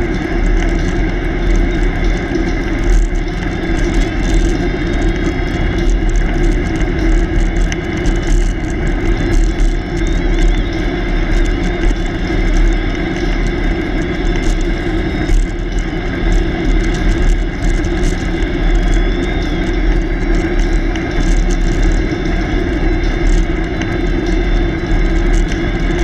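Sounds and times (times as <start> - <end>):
bicycle tyres humming on asphalt: 0.0 - 26.0
wind rush over microphone: 0.0 - 26.0.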